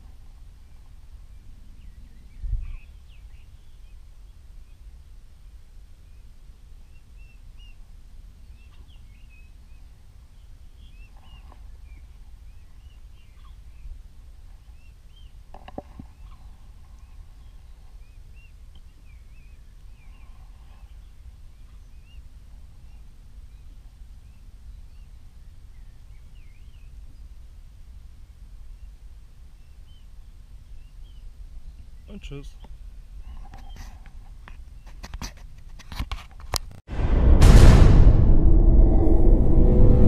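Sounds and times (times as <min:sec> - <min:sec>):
birds chirping: 0:00.6 - 0:04.9, 0:06.0 - 0:27.3, 0:28.2 - 0:35.0
sharp knock: 0:36.9 - 0:40.0
steady low rumble: 0:36.9 - 0:40.0.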